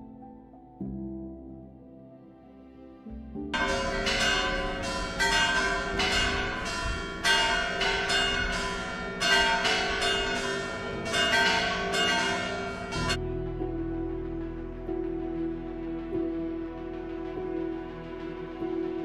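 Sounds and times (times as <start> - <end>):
church bells ringing: 3.6 - 13.2.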